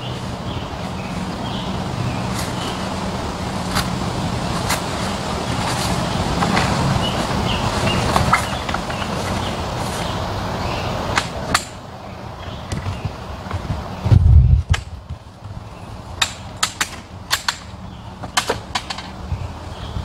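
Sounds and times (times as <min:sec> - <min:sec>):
birds chirping: 0:00.0 - 0:20.0
steady low hum: 0:00.0 - 0:20.0
metal poles clicking and knocking: 0:04.6 - 0:10.2, 0:11.1 - 0:11.8, 0:16.2 - 0:19.2.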